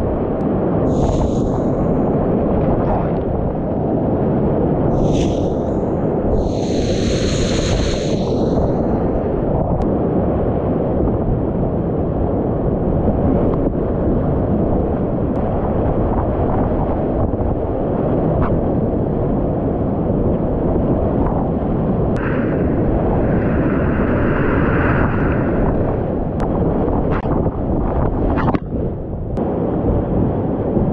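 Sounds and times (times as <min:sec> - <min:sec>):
wind buffeting microphone: 0:00.0 - 0:30.9
high hiss: 0:00.9 - 0:02.0, 0:04.9 - 0:09.2.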